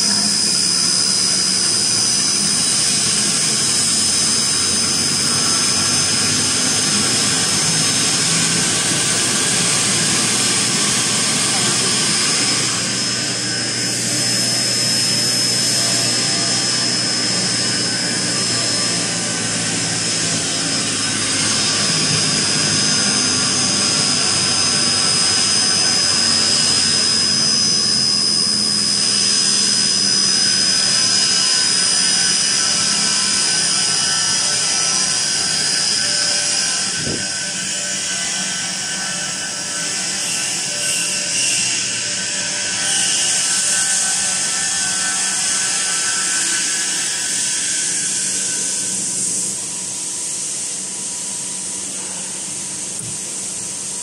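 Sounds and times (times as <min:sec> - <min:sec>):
mixer motor whining: 0:00.0 - 0:49.9.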